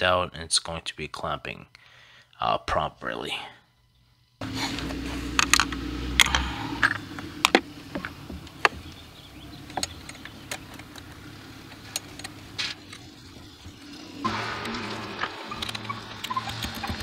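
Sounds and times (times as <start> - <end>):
steady low hum: 3.5 - 17.0.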